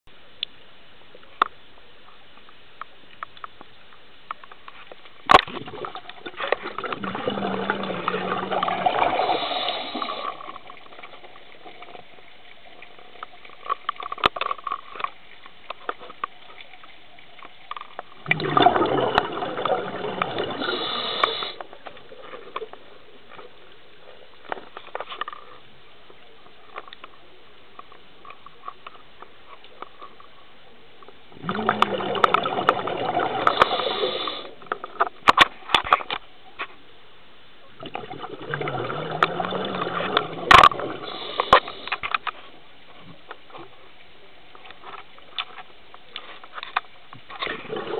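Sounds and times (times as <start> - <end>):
underwater exhaled bubbles gushing: 5.4 - 12.8, 18.2 - 21.6, 31.3 - 34.5, 37.8 - 41.8, 47.4 - 47.9.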